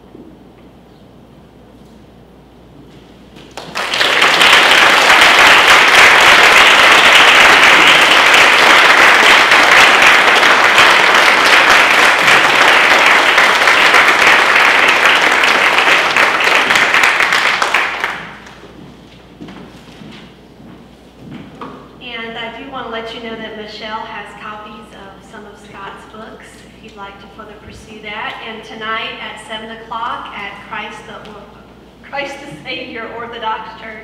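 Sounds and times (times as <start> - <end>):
audience applauding: 3.4 - 18.6.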